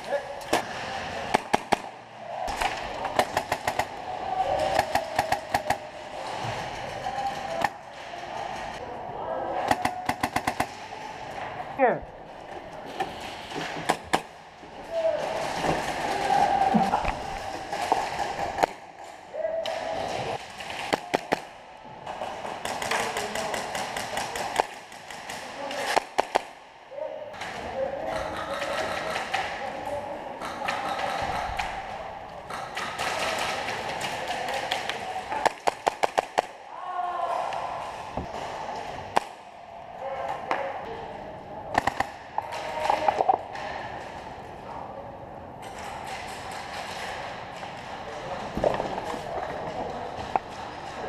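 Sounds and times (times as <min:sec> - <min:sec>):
airsoft gunshots: 0:00.5 - 0:04.0.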